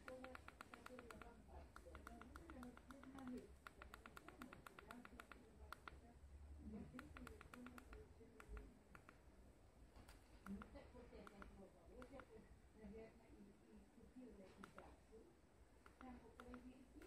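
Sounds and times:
rapid clicks: 0:00.0 - 0:06.0, 0:06.9 - 0:09.2, 0:15.8 - 0:17.0.

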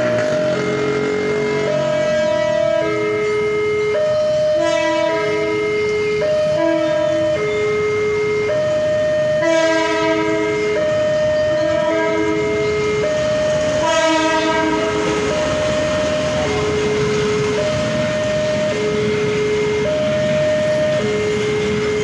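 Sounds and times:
diesel locomotive horn blasts: 0:00.0 - 0:03.4, 0:04.4 - 0:08.6, 0:09.3 - 0:15.6
two-tone warning siren wail: 0:00.0 - 0:22.0.

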